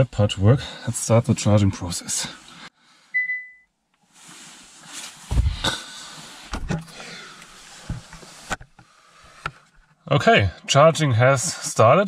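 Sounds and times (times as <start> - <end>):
short electronic beep: 3.2 - 3.7
loud bumps: 5.3 - 5.8, 6.5 - 7.1
camera handling rustling: 6.5 - 10.0.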